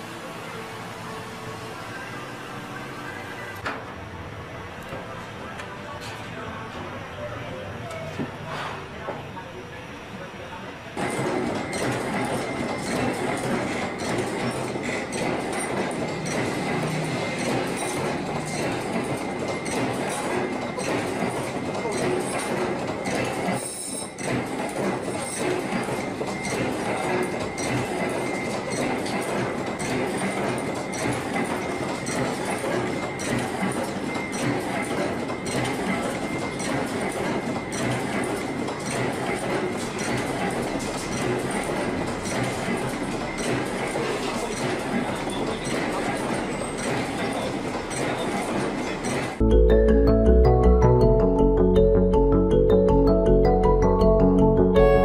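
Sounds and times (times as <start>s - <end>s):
machine metallic clatter: 11.0s - 49.4s
faint high tone: 54.7s - 55.0s.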